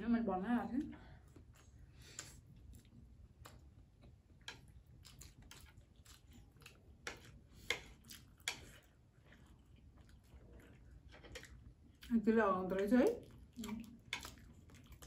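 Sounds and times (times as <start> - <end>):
noodles slurped and chewed: 1.2 - 15.0
chopsticks clicking on plates: 4.4 - 5.2, 7.0 - 8.9.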